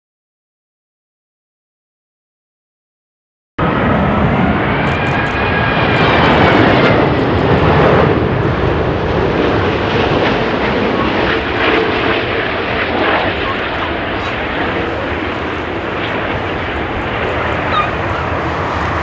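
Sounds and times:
jet airliner roar: 0:03.6 - 0:19.0
high fan whine: 0:12.5 - 0:19.0.

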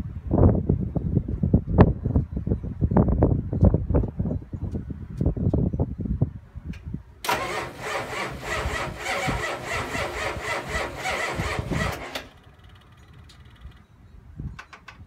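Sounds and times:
diesel engine starter cranking: 0:07.2 - 0:13.8.

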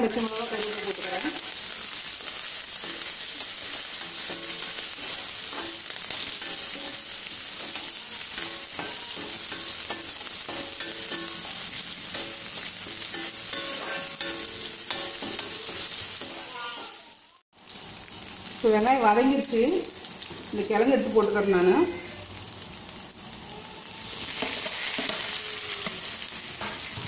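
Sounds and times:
vegetables sizzling in hot oil: 0:00.0 - 0:27.0
metal ladle scraping pan: 0:02.3 - 0:16.9.

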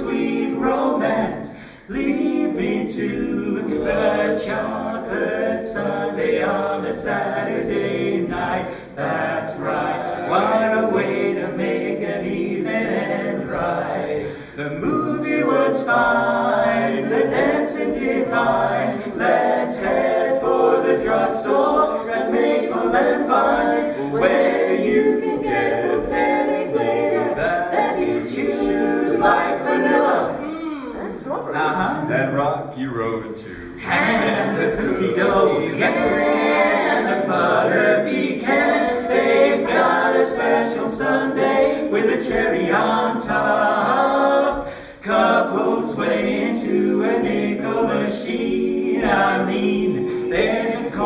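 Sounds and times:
quartet singing barbershop harmony: 0:00.0 - 0:51.0.

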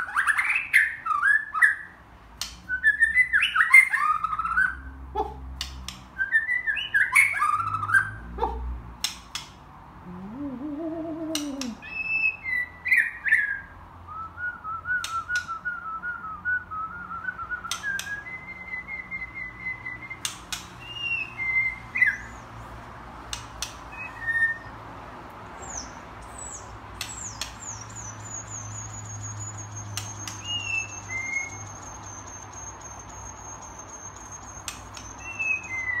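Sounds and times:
bird singing whistled phrases: 0:02.7 - 0:04.8, 0:06.2 - 0:08.2, 0:11.3 - 0:22.4, 0:23.9 - 0:24.7, 0:25.6 - 0:36.0
bird clicks: 0:05.6 - 0:06.2, 0:09.0 - 0:09.6, 0:11.2 - 0:11.8, 0:15.0 - 0:15.6, 0:17.6 - 0:18.3, 0:20.2 - 0:20.8, 0:23.2 - 0:23.9, 0:26.9 - 0:27.8, 0:29.9 - 0:30.8, 0:34.2 - 0:35.8.

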